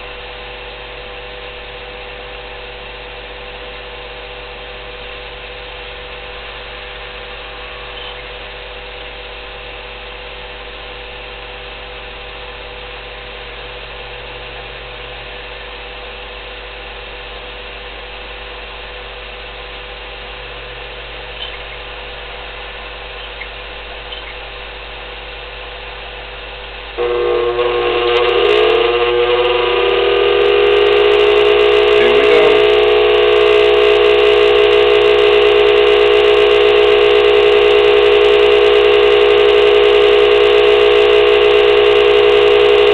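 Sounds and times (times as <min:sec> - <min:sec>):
convection blower whining: 0:26.7 - 0:42.9
pellet stove motor hum: 0:26.8 - 0:42.9.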